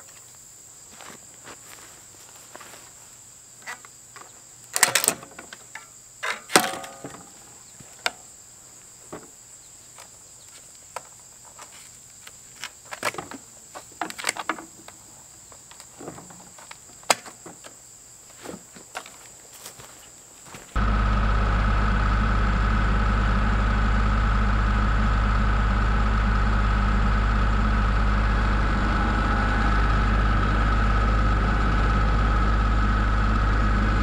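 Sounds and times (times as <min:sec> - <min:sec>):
strap cracking against metal: 0:04.7 - 0:07.3.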